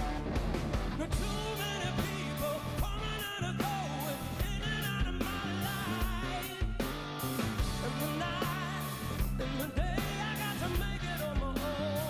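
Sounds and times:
rock band playing live: 0:00.0 - 0:12.0
man singing: 0:00.9 - 0:12.0.

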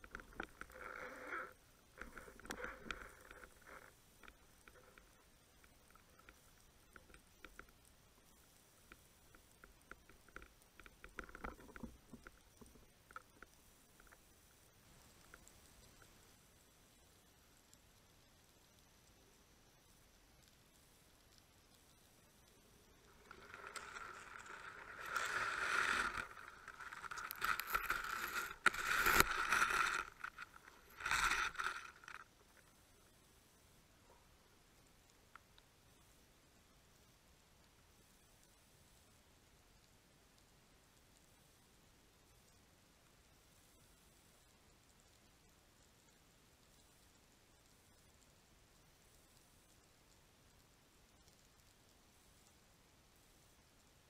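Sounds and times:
crackles and knocks: 0:00.0 - 0:33.2, 0:45.8 - 0:52.6
faint underwater clicks: 0:00.0 - 0:39.1, 0:39.8 - 0:54.0.

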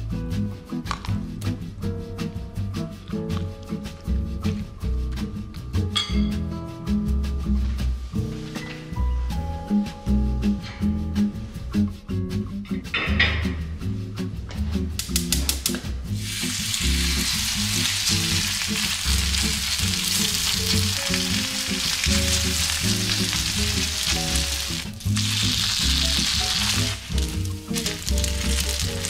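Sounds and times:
batter sizzling in hot oil: 0:16.1 - 0:29.0.

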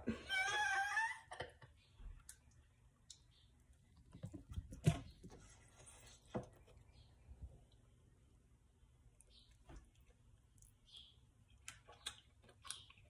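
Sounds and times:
eating clicks and mouth noises: 0:09.2 - 0:13.0.

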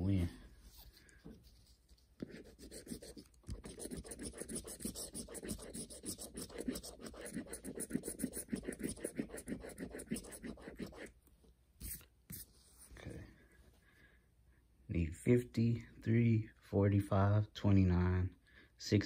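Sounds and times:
rapid scratching on a ticket: 0:01.6 - 0:11.1.

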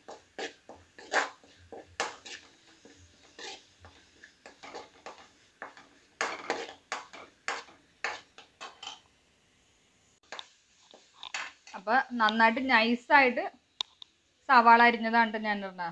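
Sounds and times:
paste frying in oil: 0:00.0 - 0:09.1, 0:10.2 - 0:12.6
spoon scraping metal wok: 0:00.0 - 0:09.1, 0:10.2 - 0:12.6.

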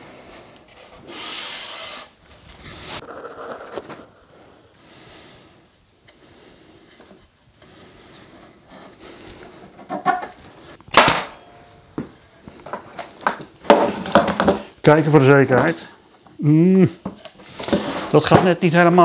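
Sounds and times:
wooden strip scraping board: 0:00.8 - 0:02.2.

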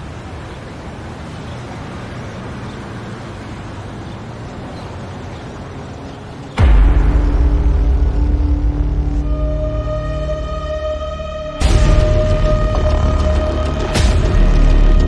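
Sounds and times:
low rumble: 0:06.6 - 0:15.0.

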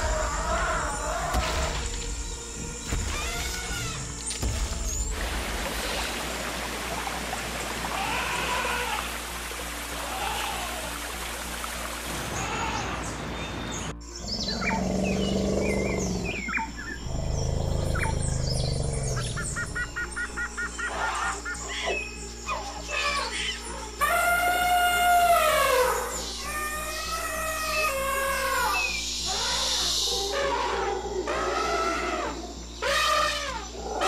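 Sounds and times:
birds chirping: 0:12.2 - 0:34.0
low animal growls: 0:14.2 - 0:19.5.

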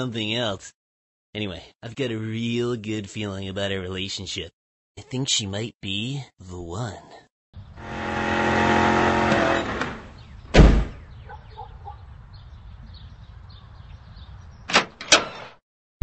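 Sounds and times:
car engine running: 0:07.8 - 0:10.2
car door slamming: 0:09.0 - 0:11.0
doorknob and latch clicks: 0:14.7 - 0:15.5.

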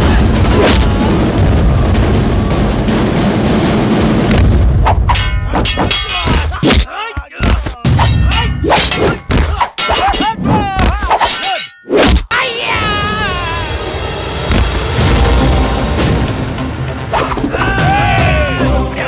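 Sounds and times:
dense rush of noise: 0:00.0 - 0:05.1
hits and metallic clangs: 0:00.0 - 0:12.3.

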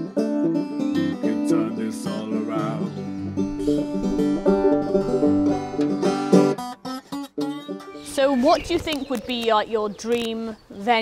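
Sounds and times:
banjo playing: 0:00.0 - 0:08.6
acoustic guitar playing: 0:00.0 - 0:08.9.

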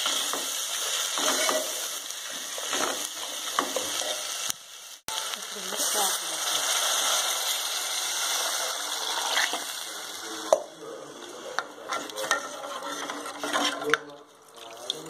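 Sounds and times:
spoon clinking and scraping pot: 0:00.0 - 0:04.0, 0:11.6 - 0:14.1
water sizzling in hot oil: 0:00.0 - 0:10.6.

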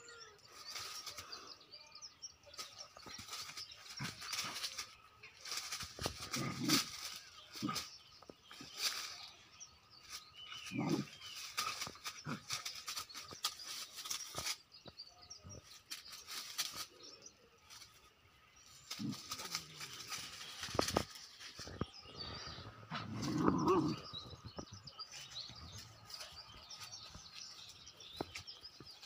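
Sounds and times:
birds chirping faintly: 0:00.0 - 0:29.0
dry leaves and grass rustling: 0:00.0 - 0:29.0
dog grunting: 0:22.9 - 0:24.1.

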